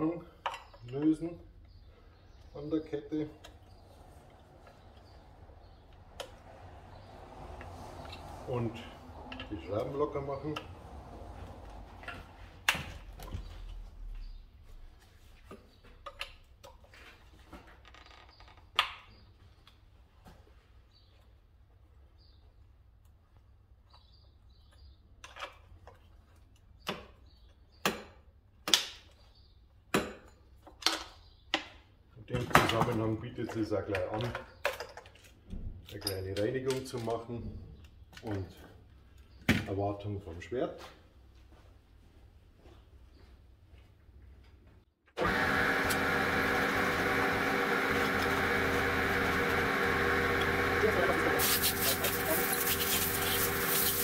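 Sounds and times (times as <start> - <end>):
air compressor running: 45.2 - 54.0
air blow gun hissing: 50.8 - 54.0.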